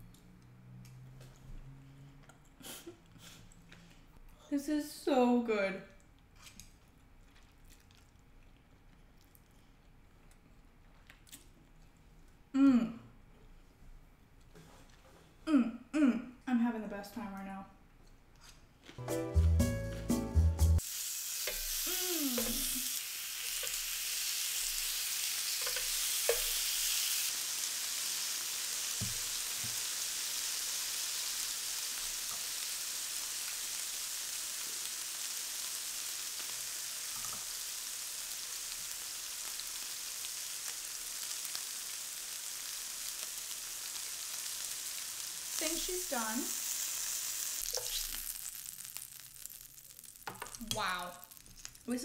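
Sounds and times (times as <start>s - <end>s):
meat sizzling on a grill: 20.8s - 52.0s.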